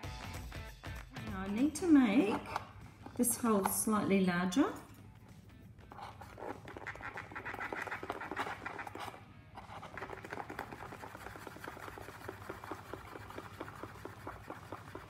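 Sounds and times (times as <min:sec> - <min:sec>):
sharp point scratching cardboard: 0:05.9 - 0:15.0.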